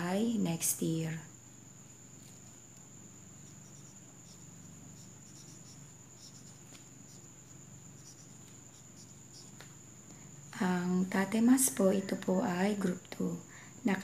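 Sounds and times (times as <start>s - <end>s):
steady high-pitched whine: 0.0s - 14.0s
marker writing on a whiteboard: 3.4s - 9.7s.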